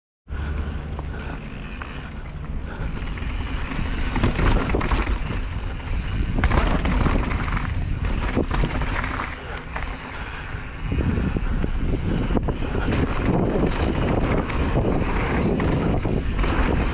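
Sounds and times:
bike knocking and rattling: 0.4s - 16.9s
wind buffeting microphone: 2.6s - 16.9s
tyres rolling over dirt and rock: 3.0s - 11.4s.

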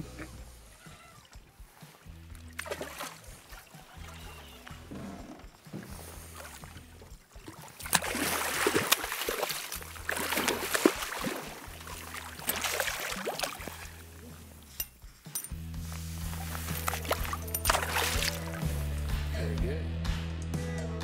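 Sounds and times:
fish thrashing and splashing: 1.2s - 15.0s, 16.1s - 18.8s.

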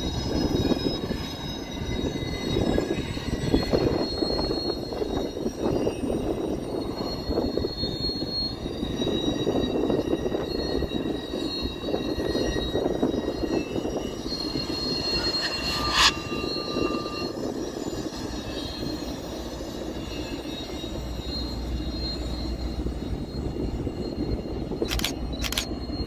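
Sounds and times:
train rumbling past: 0.0s - 26.0s
wheel squeal: 0.0s - 26.0s.

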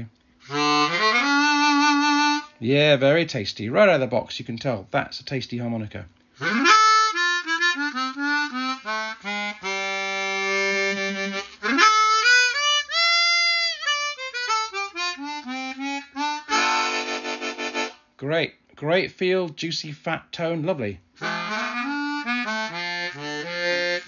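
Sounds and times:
harmonica playing: 0.0s - 2.6s, 6.4s - 18.1s, 21.2s - 24.0s.

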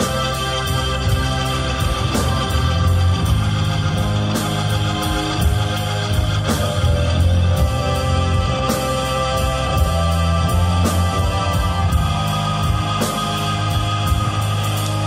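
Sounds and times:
loud instrumental rock music: 0.0s - 15.0s.

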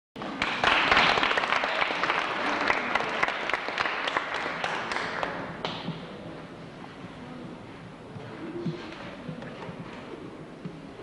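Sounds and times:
audience applauding: 0.2s - 5.5s.

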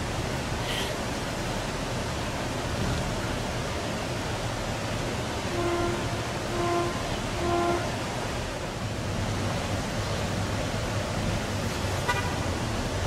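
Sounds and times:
steady rushing noise: 0.0s - 13.0s
railcar horn toots: 5.4s - 8.1s, 12.0s - 12.4s.

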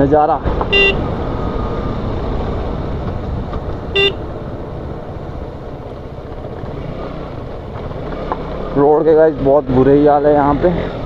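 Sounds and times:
motorcycle riding noise: 0.0s - 11.0s
motorcycle horn beep: 0.6s - 1.1s, 3.9s - 4.3s.

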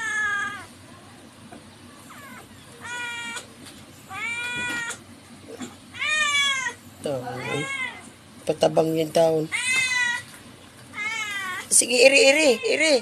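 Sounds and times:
cat meowing: 0.0s - 0.7s, 2.1s - 3.5s, 4.1s - 5.0s, 6.0s - 8.1s, 9.5s - 10.3s, 10.9s - 11.7s.

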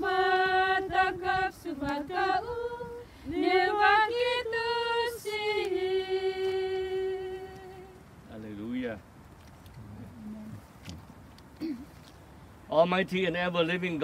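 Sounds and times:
woman singing a hymn unaccompanied: 0.0s - 8.1s.

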